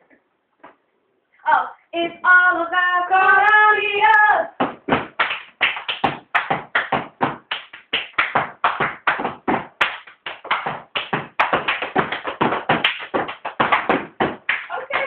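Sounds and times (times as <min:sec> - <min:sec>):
hand claps: 0:04.6 - 0:15.0.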